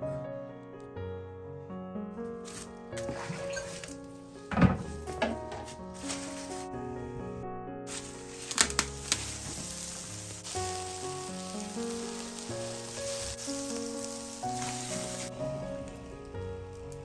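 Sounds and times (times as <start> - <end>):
soft background music: 0.0 - 17.0
wood stove hissing: 5.0 - 6.8, 7.9 - 17.0
water boiling in a wok: 7.9 - 17.0.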